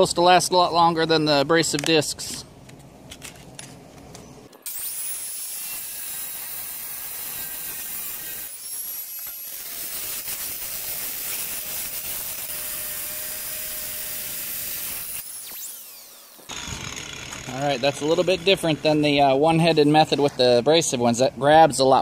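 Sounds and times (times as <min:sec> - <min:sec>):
angle grinder cutting steel: 0:04.6 - 0:20.1.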